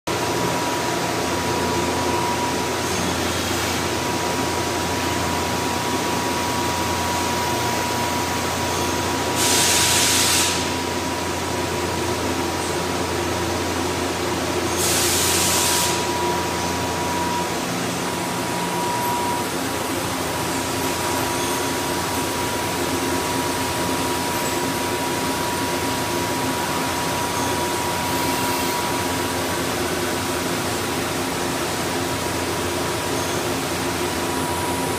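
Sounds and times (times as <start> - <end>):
lathe machine running: 0.1 - 34.9
thin steady whine: 0.1 - 34.9
hiss bursts: 9.2 - 10.9, 14.7 - 16.1
coolant spraying: 9.4 - 10.9, 14.7 - 16.1.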